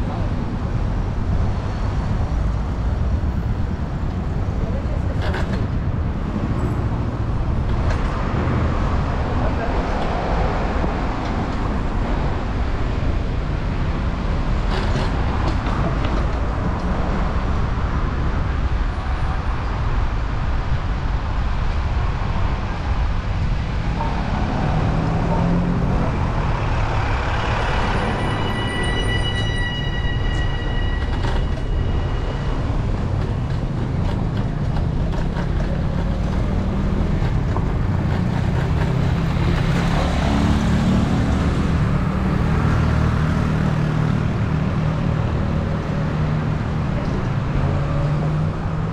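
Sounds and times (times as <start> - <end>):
bus passing: 0.0 - 48.9
city traffic: 0.0 - 48.9
wind and rolling tyres: 0.0 - 48.9
high steady squeal: 26.2 - 33.8.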